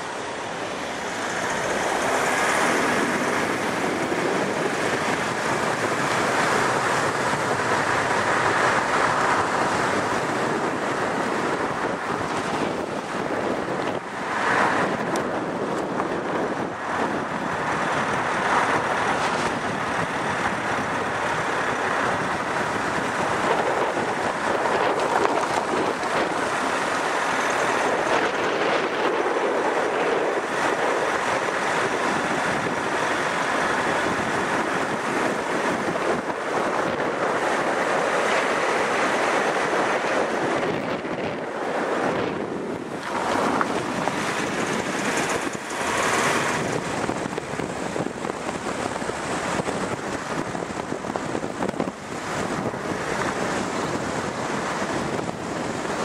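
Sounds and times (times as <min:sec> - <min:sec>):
vehicle road noise: 0:00.0 - 0:56.0
wind rushing on microphone: 0:00.0 - 0:56.0.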